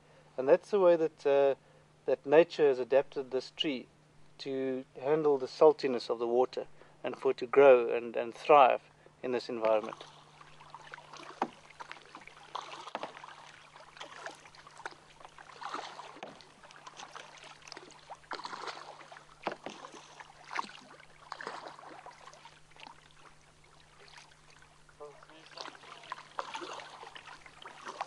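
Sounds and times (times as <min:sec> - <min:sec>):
faint steady hum: 0:00.0 - 0:28.0
paddle strokes splashing in water: 0:09.6 - 0:28.0
water dripping: 0:09.6 - 0:28.0.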